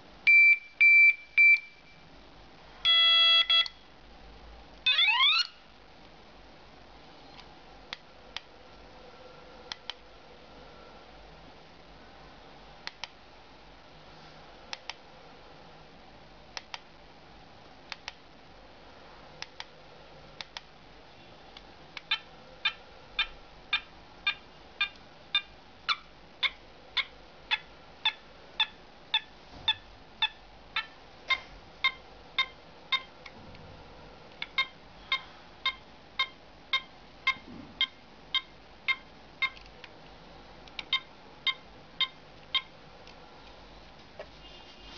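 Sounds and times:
faint switch clicks: 12.8s - 13.2s, 17.9s - 18.2s.

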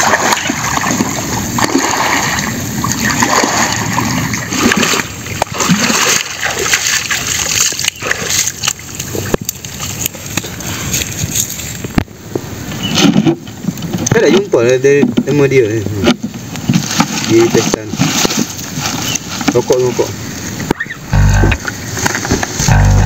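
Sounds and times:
person wading through water: 0.0s - 11.8s.

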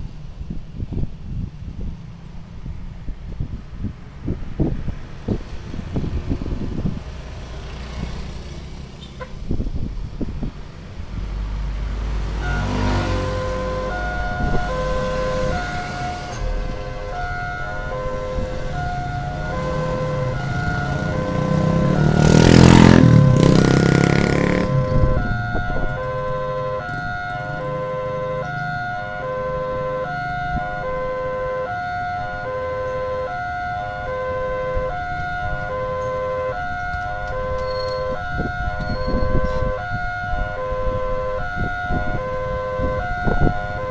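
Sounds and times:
low engine rumble: 0.0s - 43.9s
motorcycles and car passing: 0.4s - 43.9s
railroad crossing alarm tones: 12.2s - 43.9s.

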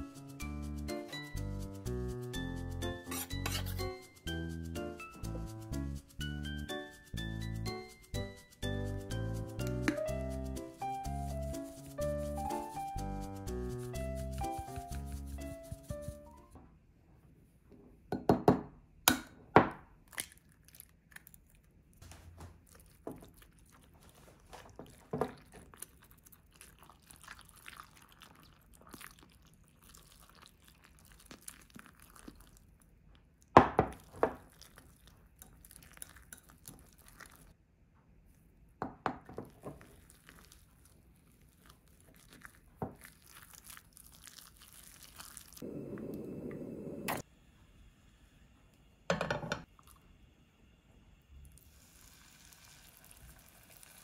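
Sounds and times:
whisk stirring in glass cup: 0.0s - 16.5s, 33.9s - 37.6s, 41.4s - 45.6s
egg tapped and cracked: 18.1s - 20.3s
oil pouring into frying pan: 51.5s - 54.0s.

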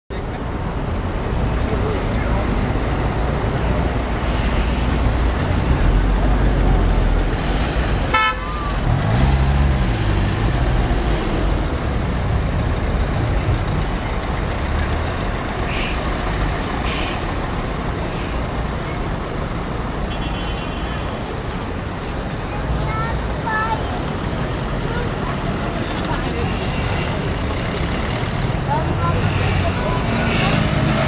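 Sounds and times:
cars driving past: 0.7s - 20.1s, 21.2s - 31.0s
car horn toot: 8.1s - 8.6s.

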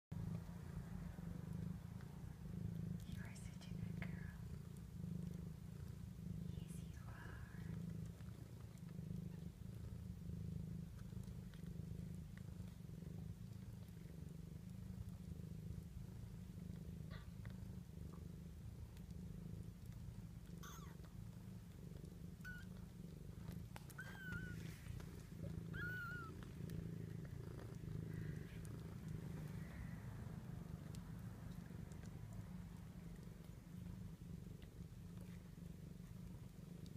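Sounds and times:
cat purring: 0.1s - 36.9s
kittens squeaking: 24.0s - 24.6s, 25.7s - 26.4s.

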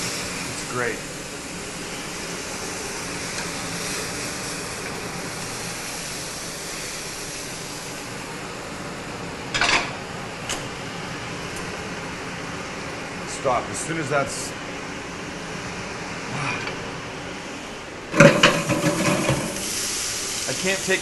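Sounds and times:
meat sizzling in a grill pan: 0.0s - 8.1s, 18.2s - 21.0s.

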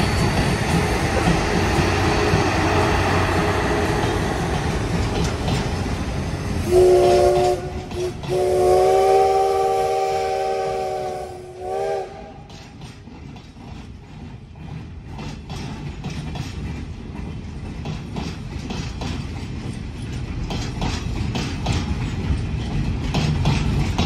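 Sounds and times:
wheels clicking over rail joints: 0.0s - 8.6s, 12.1s - 24.0s
rumble of passing freight train: 0.0s - 24.0s
steam locomotive whistle: 6.6s - 12.6s.

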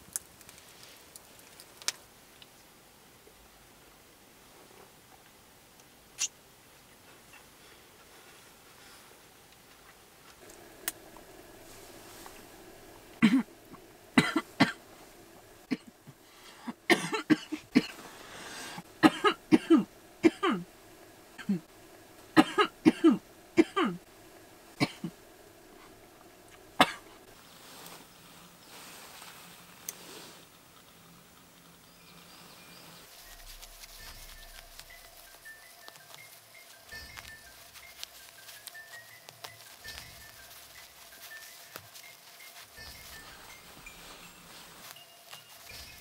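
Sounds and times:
woman coughing hard: 13.2s - 13.5s, 14.2s - 14.8s, 15.7s - 15.9s, 16.6s - 18.0s, 19.0s - 20.7s, 21.4s - 21.7s, 22.4s - 24.0s, 24.8s - 25.2s, 26.8s - 27.1s.

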